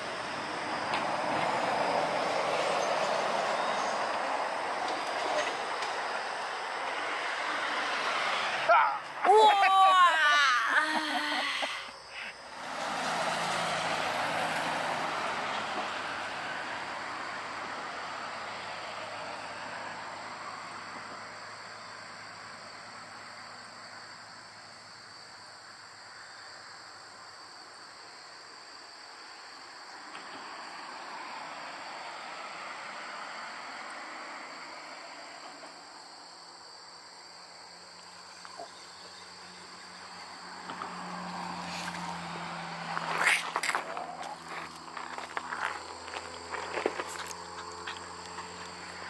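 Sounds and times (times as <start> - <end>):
insects chirring: 0.0 - 49.0
road traffic rushing past: 0.0 - 49.0.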